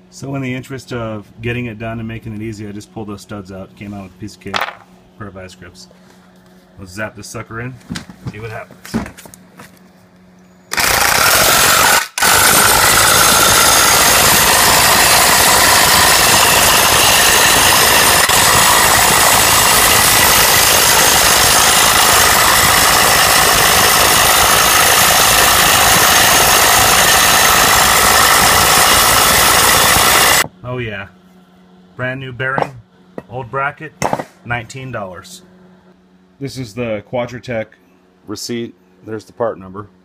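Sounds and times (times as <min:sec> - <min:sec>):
impact wrench running: 0:10.7 - 0:30.5, 0:34.0 - 0:34.4.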